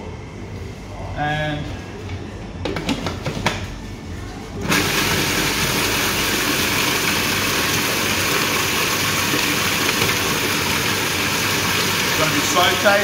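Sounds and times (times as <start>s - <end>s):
food processor running: 4.6s - 13.0s.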